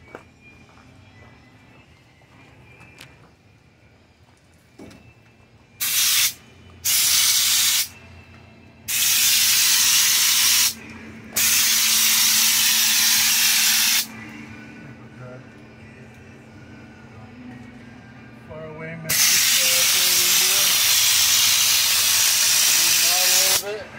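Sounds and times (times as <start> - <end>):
spray gun hissing: 5.8 - 7.9, 8.9 - 10.8, 11.4 - 14.1, 19.1 - 23.6.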